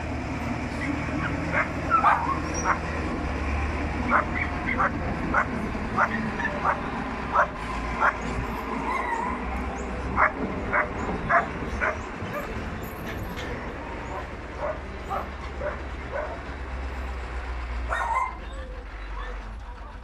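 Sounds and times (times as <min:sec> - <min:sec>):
dogs barking: 0:01.1 - 0:03.0, 0:04.0 - 0:12.6, 0:14.0 - 0:16.6, 0:17.8 - 0:18.5.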